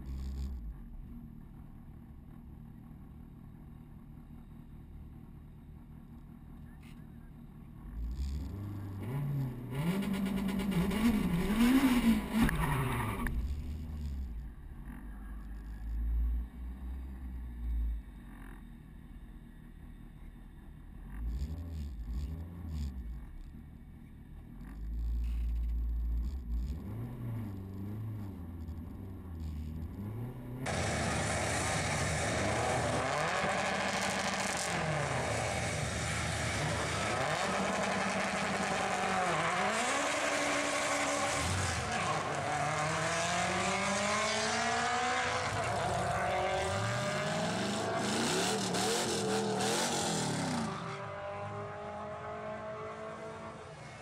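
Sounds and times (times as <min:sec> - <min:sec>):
car engine revving: 0:07.7 - 0:18.7, 0:24.3 - 0:54.0
car accelerating through gear changes: 0:08.0 - 0:14.3, 0:26.2 - 0:54.0.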